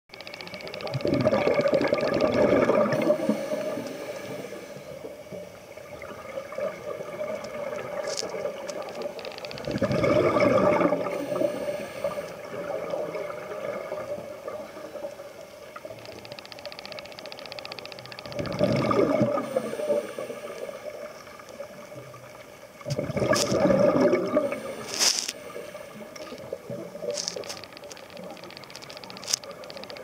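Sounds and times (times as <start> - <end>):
gurgling exhaled bubbles: 0.8 - 4.6, 5.8 - 15.1, 18.3 - 27.2
regulator hissing inhale: 3.0 - 5.1, 11.1 - 12.6, 19.4 - 21.2, 24.4 - 26.5.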